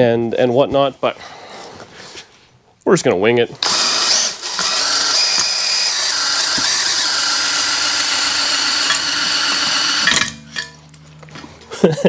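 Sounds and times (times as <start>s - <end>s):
drill whining: 3.6s - 10.7s
hone stones grinding metal: 4.5s - 11.7s.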